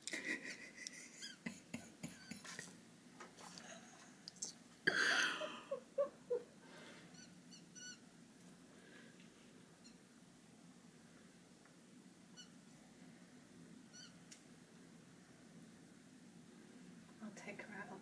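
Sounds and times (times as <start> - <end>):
faint short squeaks: 7.1 - 8.0, 12.3 - 12.6, 13.9 - 14.2.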